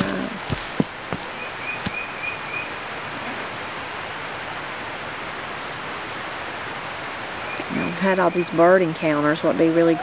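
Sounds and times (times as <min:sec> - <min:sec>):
rushing woodland background noise: 0:00.0 - 0:10.0
bird chirping: 0:01.3 - 0:03.1.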